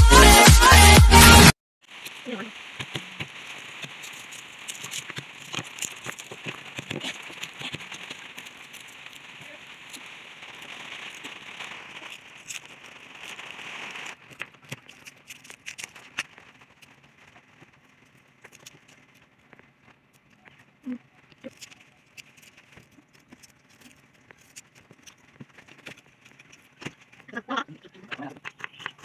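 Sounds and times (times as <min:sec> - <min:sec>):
steady hiss: 0:01.8 - 0:29.0
garlic skins crackling: 0:01.9 - 0:29.0.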